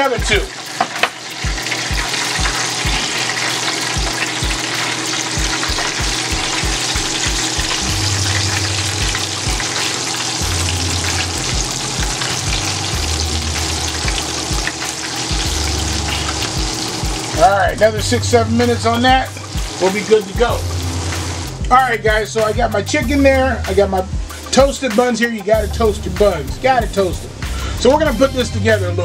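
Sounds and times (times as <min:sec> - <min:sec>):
oil sizzling in deep fryer: 0:00.0 - 0:22.4.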